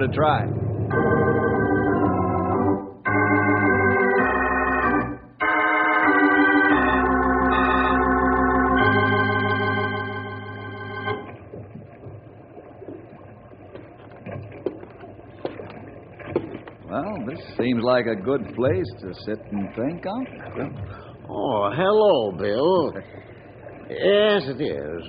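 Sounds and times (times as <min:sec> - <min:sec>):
organ chords: 0:00.0 - 0:11.4.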